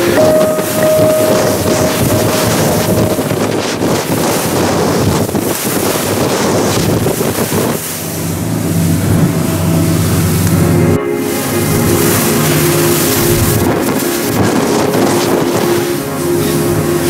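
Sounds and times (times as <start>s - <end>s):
wind buffeting microphone: 0.0s - 17.0s
low engine hum: 6.6s - 17.0s.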